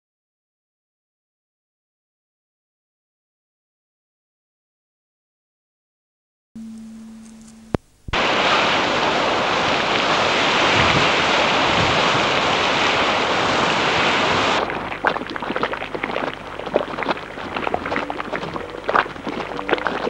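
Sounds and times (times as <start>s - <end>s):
boiling mud popping: 7.4s - 20.0s
geyser rushing hiss: 8.1s - 20.0s.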